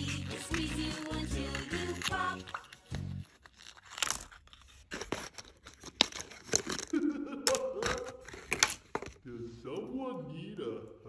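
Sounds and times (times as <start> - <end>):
paper rustling and crinkling: 0.0 - 9.2
plastic pieces set on table: 0.5 - 9.2.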